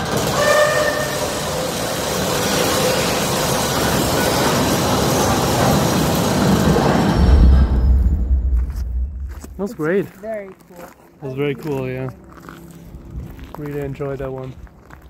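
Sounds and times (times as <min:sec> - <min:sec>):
heavy machinery roar over loudspeakers: 0:00.0 - 0:09.4.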